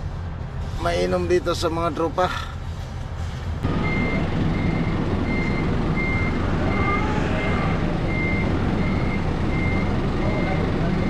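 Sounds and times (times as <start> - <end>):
forklift back-up alarm beeping: 3.6 - 11.0
forklift engine running: 3.6 - 11.0.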